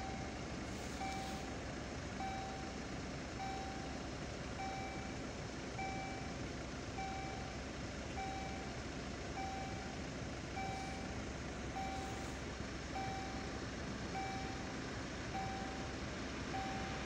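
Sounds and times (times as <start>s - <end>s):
level crossing warning signal ding: 0.0s - 1.6s, 2.2s - 4.0s, 4.6s - 5.2s, 5.8s - 6.4s, 7.0s - 7.6s, 9.4s - 10.0s, 10.6s - 11.2s, 11.8s - 12.3s, 13.0s - 14.7s, 15.4s - 17.0s
steady road noise: 0.0s - 17.0s.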